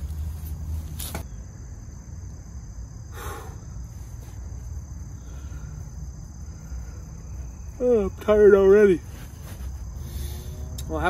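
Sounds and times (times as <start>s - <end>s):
insects droning: 0.0s - 11.0s
brief rustle: 0.1s - 1.3s.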